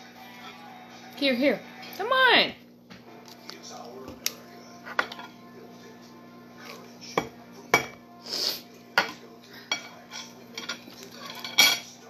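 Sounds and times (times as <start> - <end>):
cutlery clinking on a plate: 4.8 - 5.4, 7.1 - 8.0, 9.0 - 12.0
knife scraping a plate: 9.0 - 11.9.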